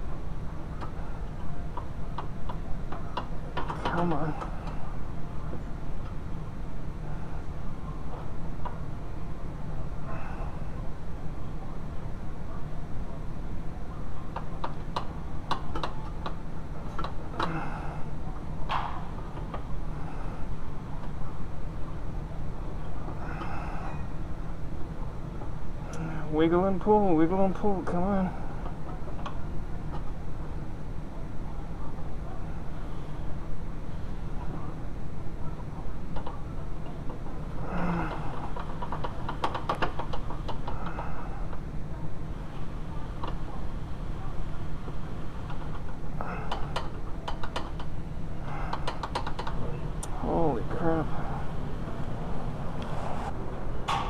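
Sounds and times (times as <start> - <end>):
steady low rumble: 49.6 - 54.0.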